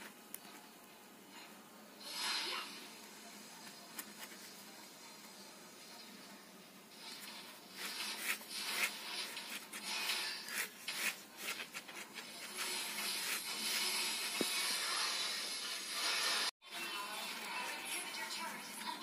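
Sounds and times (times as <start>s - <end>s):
pen scratching on carpet: 7.1s - 14.5s.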